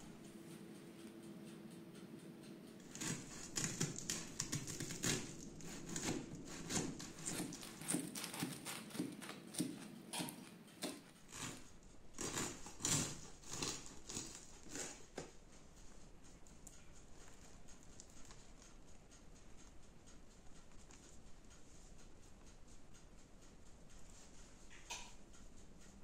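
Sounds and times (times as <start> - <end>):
knife sawing crisp bread crust: 2.8 - 15.3.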